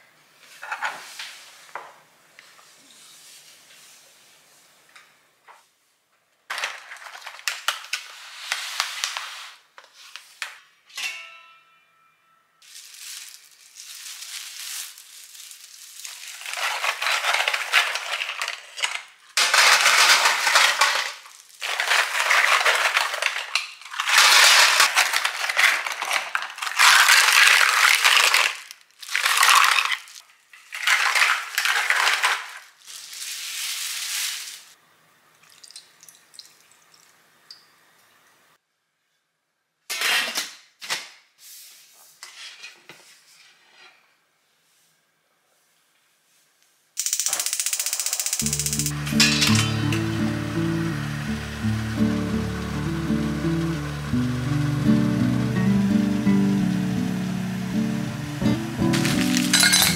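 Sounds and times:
shells clattering into a metal pot: 16.4s - 30.2s, 47.0s - 50.0s, 58.9s - 59.9s.

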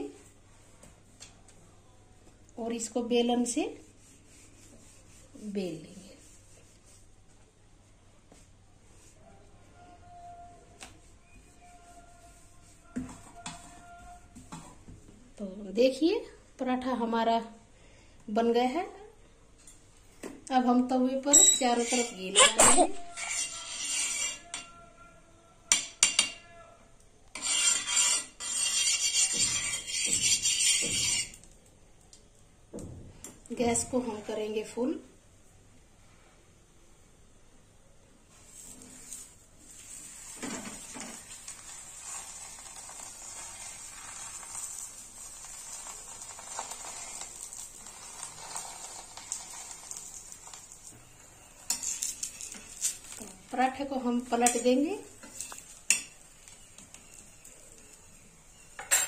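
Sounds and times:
spoon scraping griddle: 12.3s - 14.8s, 21.3s - 24.8s, 25.7s - 26.5s, 27.3s - 31.4s, 38.3s - 59.0s
metal spoon clinking on griddle: 21.3s - 22.1s, 25.7s - 26.4s, 58.8s - 59.0s.

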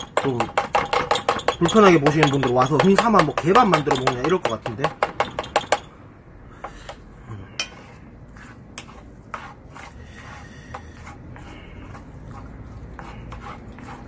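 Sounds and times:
spoon stirring food in metal pot: 0.0s - 5.9s
spoon tapping and scraping pot: 0.0s - 5.9s.

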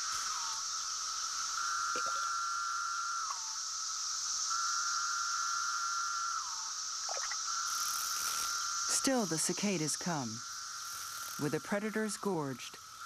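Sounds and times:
cicada calls: 0.0s - 13.0s
cicada chorus shrilling: 0.0s - 13.0s.

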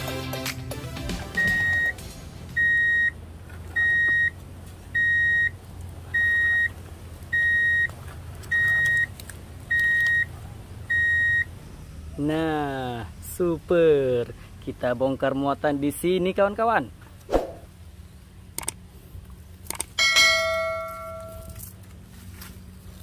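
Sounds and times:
background music: 0.0s - 2.9s
reversing alarm beeping: 1.4s - 2.0s, 2.6s - 3.2s, 3.8s - 4.4s, 5.0s - 7.9s, 8.5s - 9.1s, 9.7s - 10.3s, 10.9s - 11.5s.

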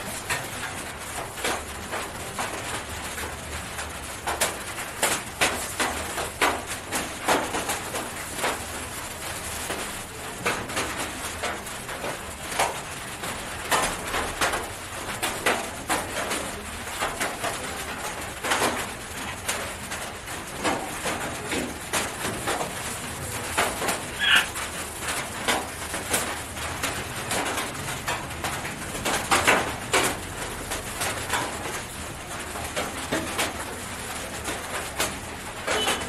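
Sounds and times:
short bird call: 24.2s - 24.5s.

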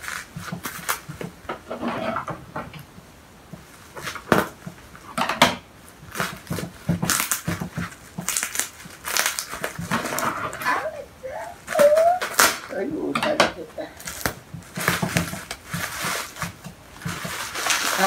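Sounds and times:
plastic wrapping crinkling: 0.0s - 1.6s, 3.6s - 5.2s, 5.8s - 18.0s.

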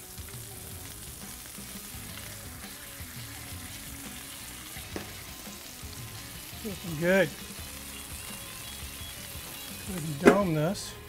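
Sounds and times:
burger patty sizzling: 0.0s - 11.0s.

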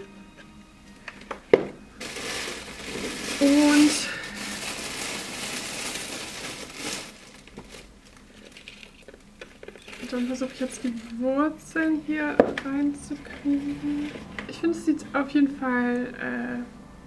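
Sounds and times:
packaging crinkling: 2.0s - 11.3s.

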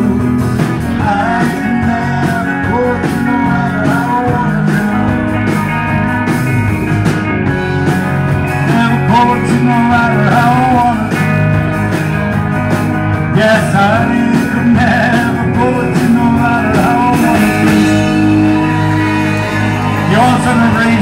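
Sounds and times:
man singing through microphone: 0.0s - 5.2s, 8.6s - 11.2s, 13.3s - 18.1s, 20.0s - 21.0s
rock band playing loudly: 0.0s - 21.0s.

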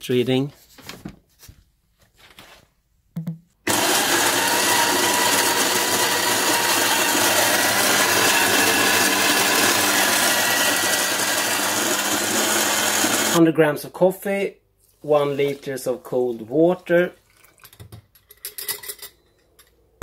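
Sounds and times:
coffee grinder grinding beans: 3.7s - 13.4s.

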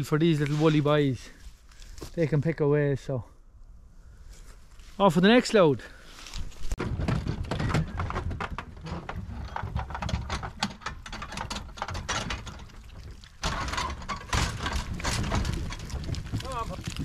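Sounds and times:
metal gate rattling: 6.8s - 16.1s
hooves clattering on trailer floor: 6.8s - 17.0s.

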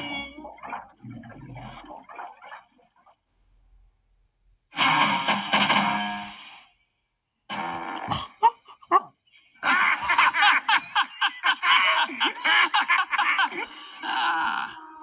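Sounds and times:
cartoon characters laughing: 8.1s - 14.8s.

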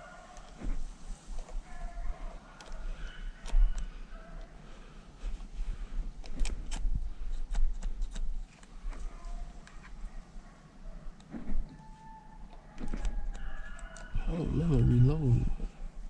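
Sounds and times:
sharp clicks and snaps: 2.6s - 2.8s, 6.2s - 9.0s, 12.4s - 14.2s.

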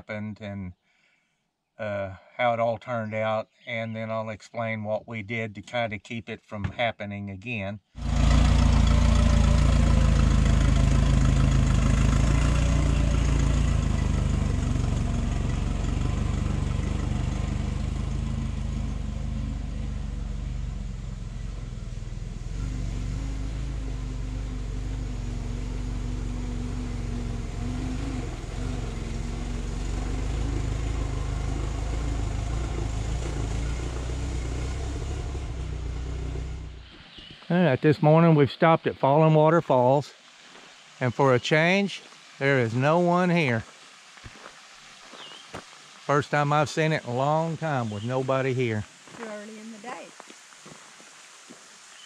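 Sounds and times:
car engine running: 8.0s - 36.9s, 46.1s - 50.0s.

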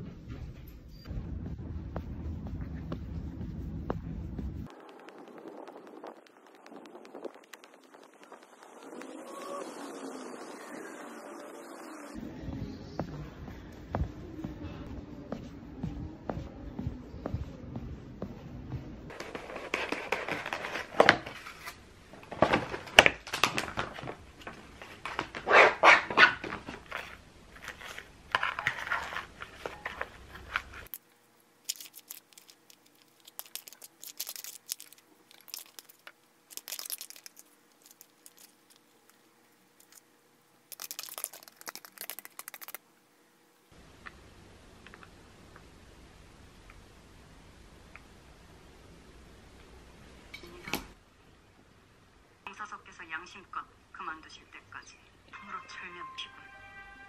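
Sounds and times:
plastic packaging crinkling: 19.1s - 25.5s, 26.2s - 39.2s, 39.8s - 40.0s, 40.7s - 42.8s
plastic sachet squeezed: 31.6s - 38.8s, 39.8s - 40.0s, 40.7s - 42.8s.

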